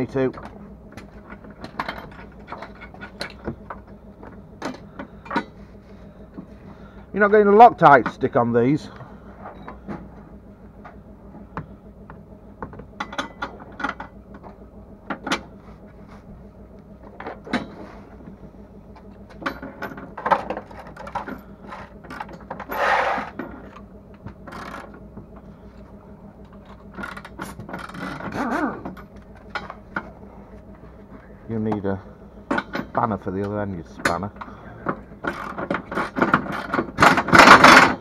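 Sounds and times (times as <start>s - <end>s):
ratchet rasping runs: 24.4s - 25.0s, 26.5s - 29.7s, 34.1s - 38.0s.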